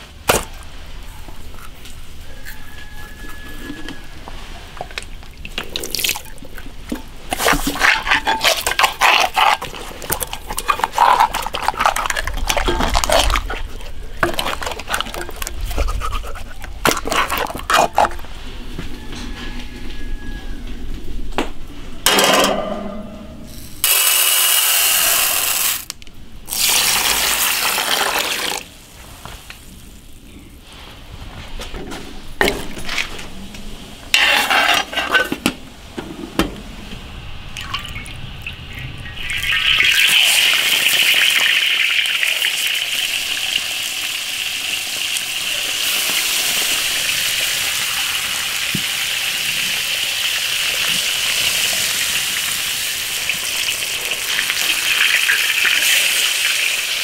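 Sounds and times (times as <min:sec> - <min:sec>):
water pouring and splashing: 0:04.3 - 0:18.1, 0:26.5 - 0:30.1, 0:37.6 - 0:57.0
fish sizzling in hot oil: 0:23.8 - 0:25.9, 0:26.5 - 0:28.6, 0:39.1 - 0:57.0.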